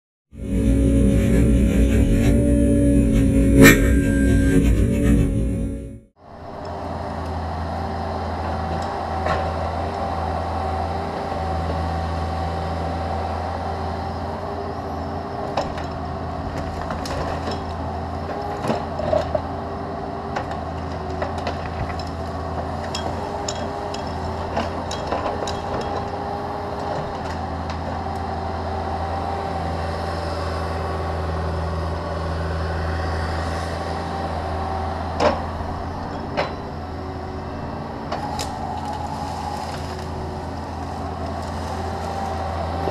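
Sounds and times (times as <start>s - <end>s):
excavator engine droning: 0.3s - 42.9s
wood and roots snapping: 38.0s - 42.9s.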